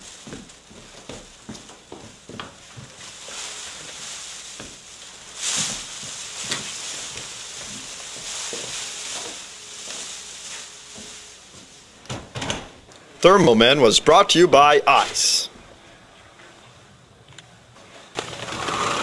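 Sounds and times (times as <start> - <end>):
steady treble hiss: 2.9 - 12.0, 13.0 - 15.5.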